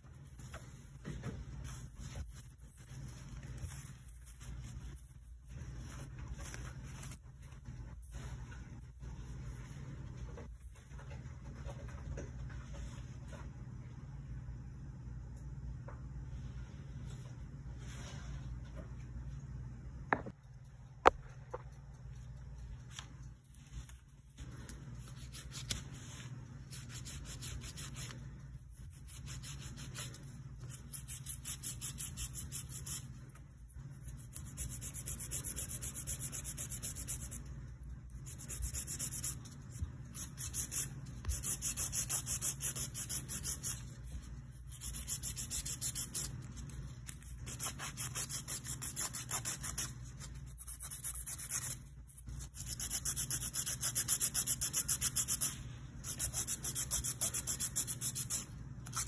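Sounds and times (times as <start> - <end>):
nail file rubbing on nail: 25.0 - 26.0, 26.6 - 28.2, 28.8 - 37.5, 38.1 - 59.0.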